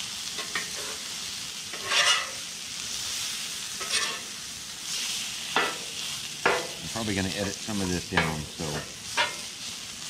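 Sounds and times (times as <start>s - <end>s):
hash browns sizzling on griddle: 0.0s - 10.0s
metal spatula scraping: 0.4s - 2.4s, 3.7s - 4.4s, 8.2s - 9.5s.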